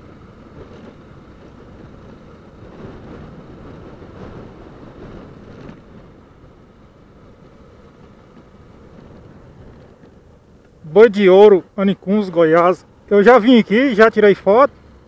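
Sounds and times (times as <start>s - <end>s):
wind noise on microphone: 0.4s - 6.7s.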